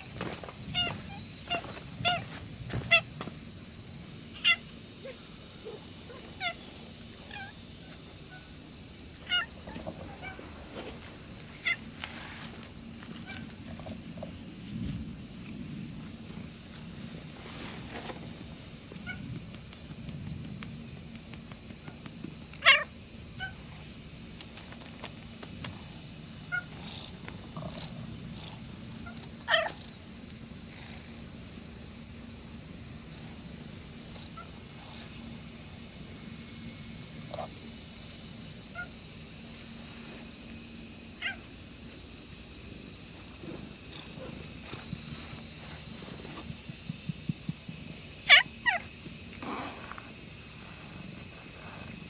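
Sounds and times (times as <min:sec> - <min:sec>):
cat purring: 0:26.8 - 0:28.6.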